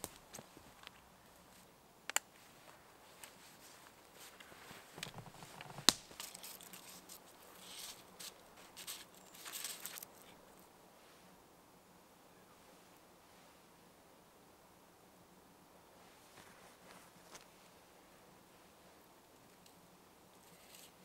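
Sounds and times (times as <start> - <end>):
footsteps crunching over twigs: 0.0 - 1.7, 2.3 - 10.3
twig snaps: 2.1 - 2.3, 5.7 - 6.8
cord scraping around tree trunk: 3.2 - 10.4, 20.4 - 21.0.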